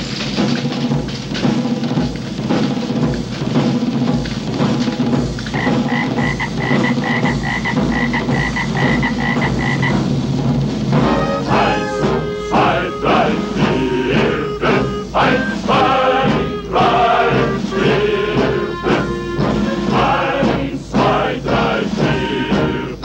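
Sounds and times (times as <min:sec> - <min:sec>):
steady drumming: 0:00.0 - 0:23.0
toads croaking: 0:05.5 - 0:10.1
high chirping pulse: 0:11.0 - 0:20.7.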